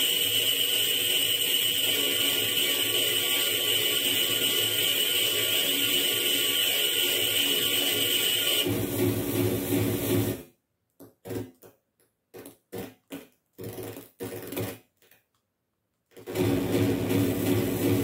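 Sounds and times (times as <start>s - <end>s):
glitchy electronic noise music: 0.0s - 8.8s.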